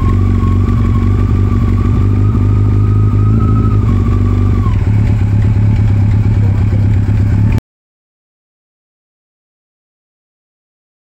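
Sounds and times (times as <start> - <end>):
high whine: 0.0 - 7.6
motorcycle engine running: 0.0 - 7.6.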